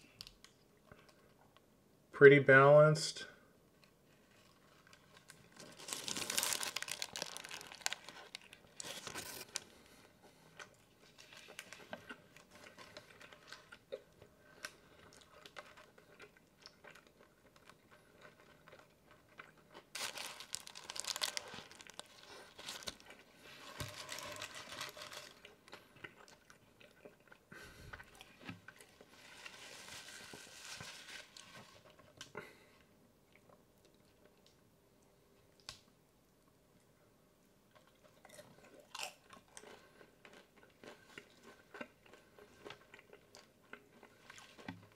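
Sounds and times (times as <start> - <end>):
paper wrapper crinkling: 4.3 - 9.8, 11.0 - 13.7, 19.9 - 25.5, 29.0 - 32.0
biting and chewing: 37.8 - 44.9.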